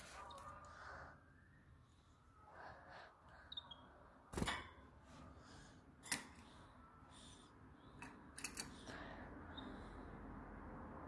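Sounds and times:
canary peeping: 3.4 - 4.4, 9.5 - 10.0.

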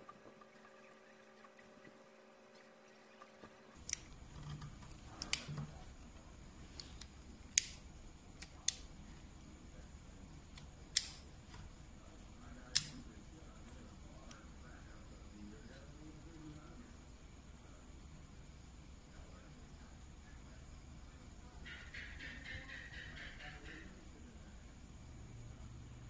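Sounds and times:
sharp plastic clicks: 3.8 - 5.8, 6.7 - 8.9, 10.5 - 11.2, 12.7 - 13.0.

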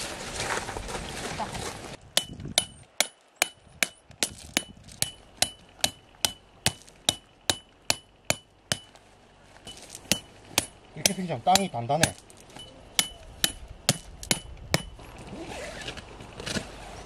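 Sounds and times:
hammer striking tent peg: 2.2 - 9.0, 9.7 - 15.0.

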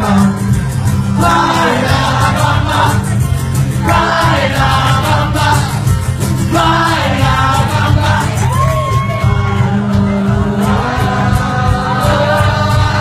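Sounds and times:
bass guitar: 0.0 - 13.0
person singing: 3.8 - 13.0.

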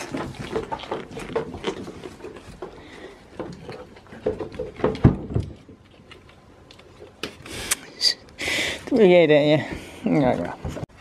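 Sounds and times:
rustling: 0.0 - 7.7.

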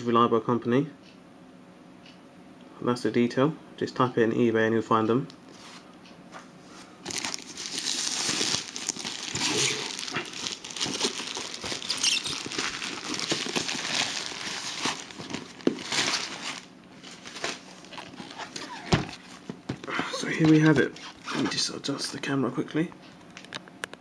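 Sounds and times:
plastic bag crinkling and tearing: 7.0 - 21.5.

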